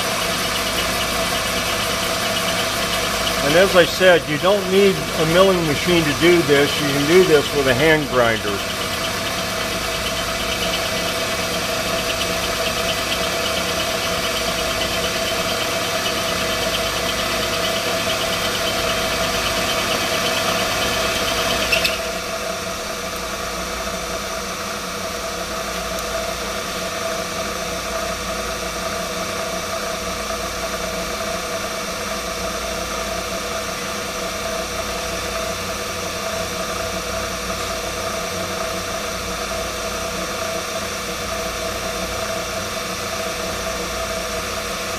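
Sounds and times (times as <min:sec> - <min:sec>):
milling machine cutting steel: 0:00.0 - 0:22.3.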